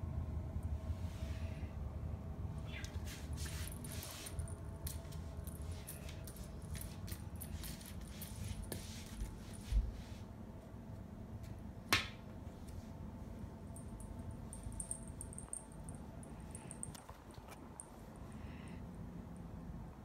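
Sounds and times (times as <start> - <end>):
cat toy rustling on wooden floor: 2.9 - 10.3.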